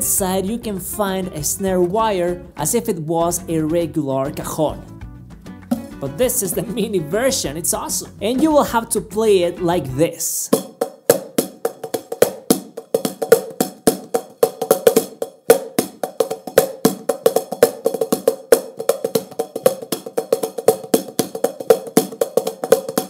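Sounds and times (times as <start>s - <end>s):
cajon hand strikes: 5.6s - 6.1s, 10.5s - 23.0s.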